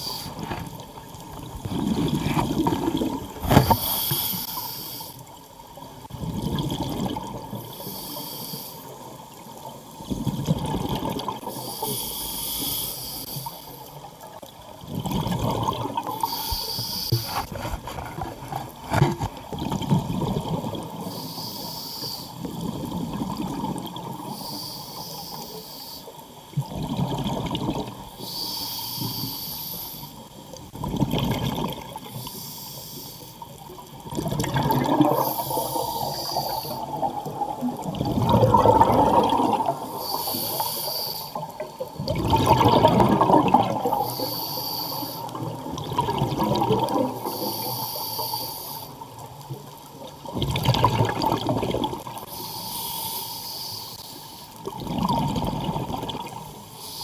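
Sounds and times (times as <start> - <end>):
exhaled bubbles rushing: 0.0 - 4.2, 6.0 - 7.6, 10.0 - 11.6, 14.8 - 16.3, 17.2 - 21.1, 22.4 - 24.3, 26.6 - 28.0, 30.7 - 32.1, 33.9 - 40.2, 41.4 - 44.1, 45.3 - 47.3, 50.2 - 52.3, 54.6 - 56.6
regulator inhalation hiss: 3.6 - 5.2, 7.6 - 9.0, 11.5 - 13.9, 16.1 - 17.5, 21.0 - 22.4, 24.3 - 26.2, 28.2 - 30.2, 32.1 - 33.4, 35.1 - 37.1, 39.8 - 41.7, 43.9 - 45.5, 47.2 - 49.1, 52.2 - 54.6, 56.7 - 57.0.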